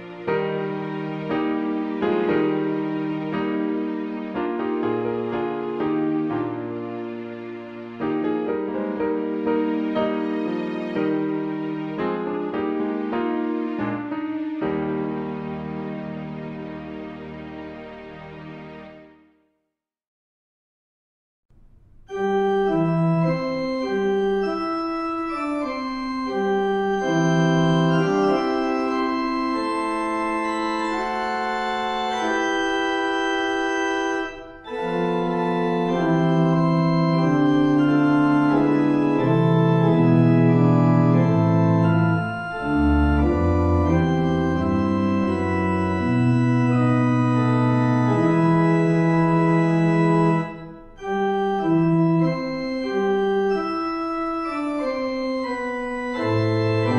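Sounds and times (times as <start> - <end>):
deep organ pedal notes: 21.8 - 56.9
organ playing sustained chords: 22.1 - 56.9.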